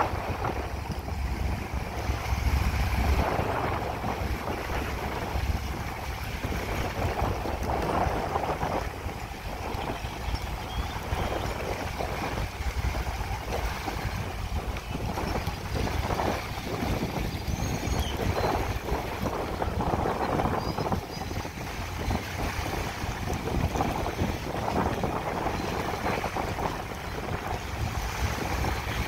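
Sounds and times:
small waves lapping on shore: 0:00.0 - 0:29.0
wind on microphone: 0:00.0 - 0:29.0.

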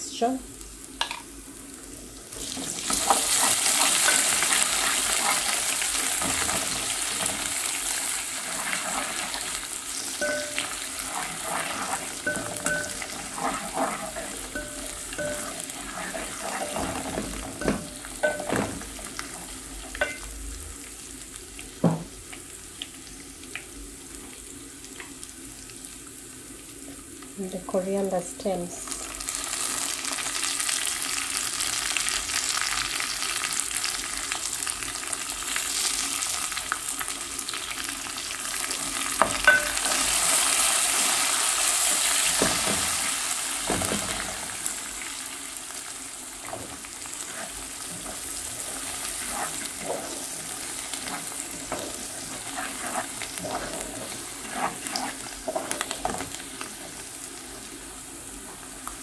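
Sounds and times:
onions sizzling in hot oil: 0:00.0 - 0:59.0
wooden spoon scraping pot: 0:10.2 - 0:20.2, 0:46.5 - 0:57.0.

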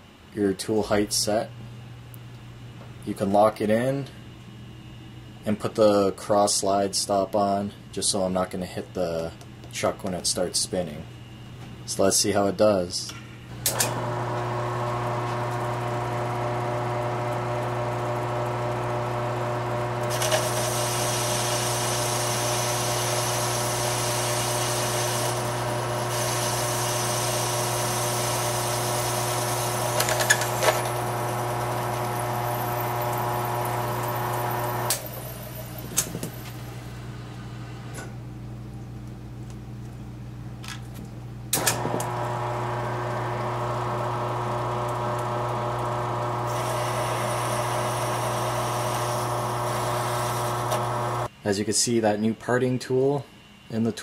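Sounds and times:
lathe motor hum: 0:13.7 - 0:36.8, 0:41.6 - 0:51.3
tool cutting brass hissing: 0:20.0 - 0:36.3, 0:46.3 - 0:51.3.

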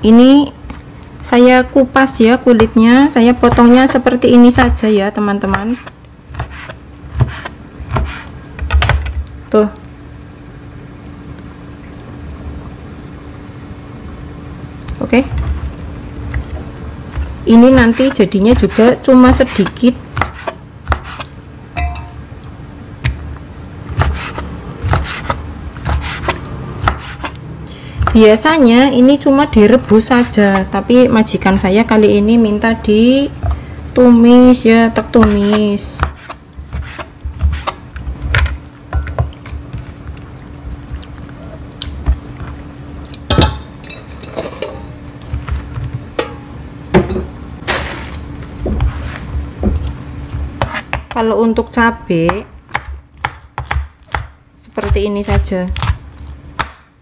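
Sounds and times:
steady low hum: 0:00.0 - 0:57.0
knife chopping on a cutting board: 0:03.4 - 0:09.2, 0:17.2 - 0:21.3, 0:23.9 - 0:27.4, 0:35.1 - 0:39.3, 0:50.6 - 0:51.2, 0:52.3 - 0:56.0, 0:56.6 - 0:56.9
metal bowl clinking: 0:21.8 - 0:22.2, 0:43.3 - 0:45.0, 0:46.2 - 0:47.3
knife cutting on plastic board: 0:23.9 - 0:27.4.

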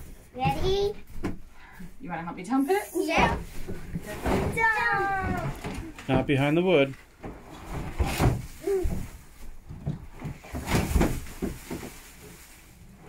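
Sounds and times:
wood shavings rustling onto floor: 0:10.3 - 0:13.0.

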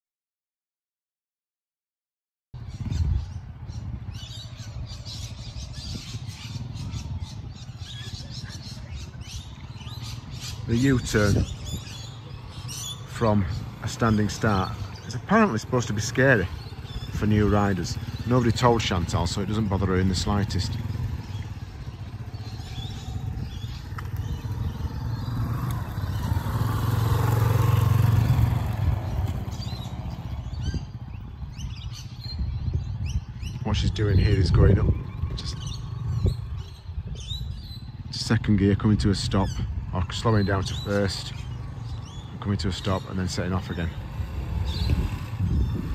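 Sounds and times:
birds chirping: 0:02.6 - 0:45.9
distant motorcycle engine rumble: 0:02.6 - 0:45.9.

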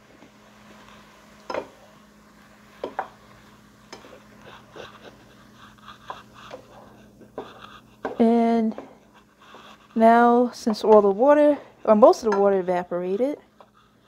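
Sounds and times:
spatula knocking and scraping pan: 0:02.8 - 0:03.2, 0:06.0 - 0:13.8.

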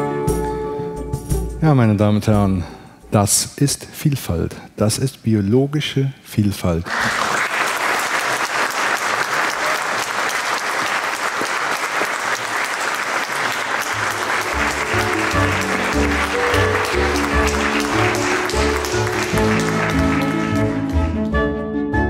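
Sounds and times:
audience applauding: 0:06.8 - 0:21.4.

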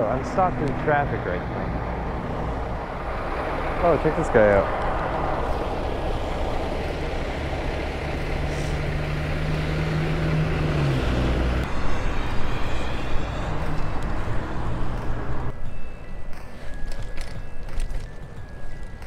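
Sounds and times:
engine hum dropping in pitch: 0:00.0 - 0:15.5
vehicles passing: 0:00.0 - 0:19.0.

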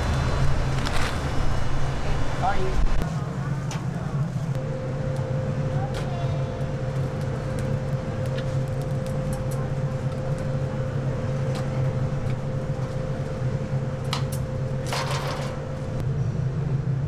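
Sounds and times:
low machine hum: 0:00.0 - 0:17.0
charcoal clatter: 0:05.8 - 0:16.0.

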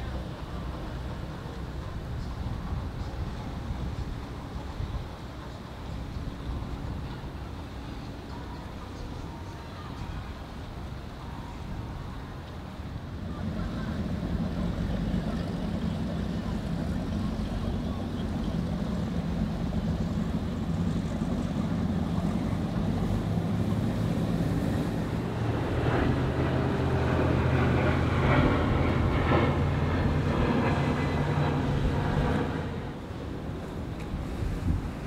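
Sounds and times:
powerboat engines running: 0:00.0 - 0:35.0
waves washing: 0:00.0 - 0:35.0
wind buffeting microphone: 0:09.0 - 0:35.0.

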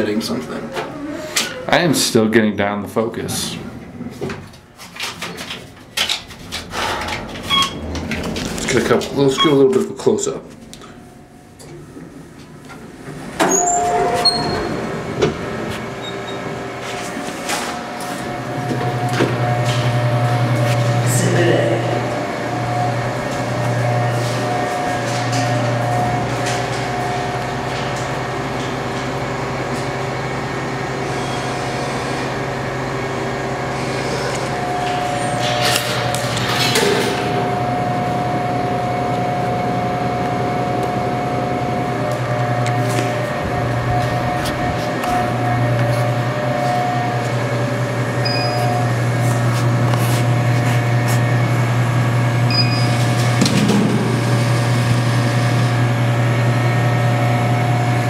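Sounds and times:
steady mechanical hum: 0:00.0 - 0:58.0
vending machine rattling: 0:04.5 - 0:10.7.

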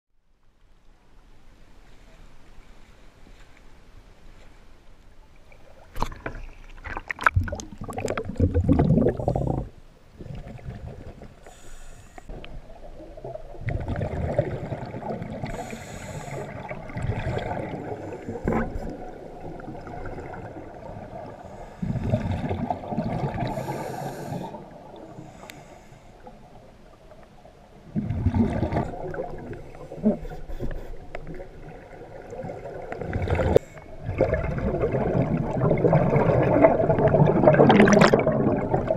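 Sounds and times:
underwater bubbling and gurgling: 0:03.9 - 0:38.9
water sloshing and splashing: 0:04.4 - 0:11.4, 0:12.3 - 0:15.7, 0:16.3 - 0:23.9, 0:27.8 - 0:38.9.

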